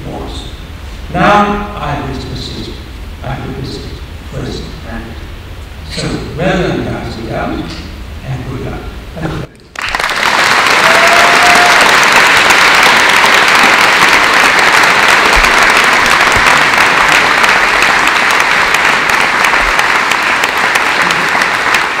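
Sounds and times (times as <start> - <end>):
crowd clapping: 9.7 - 22.0.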